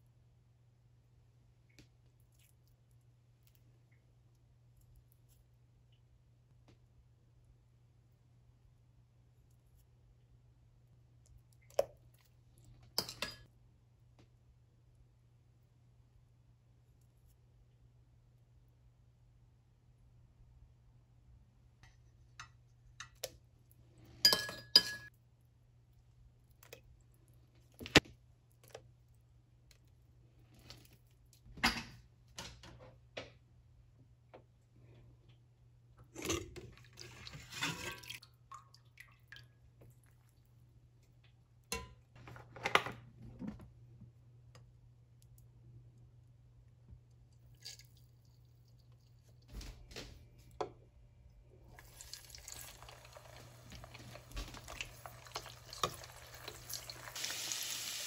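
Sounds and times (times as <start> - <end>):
metal spoon clinking on steel pot: 24.3 - 25.1.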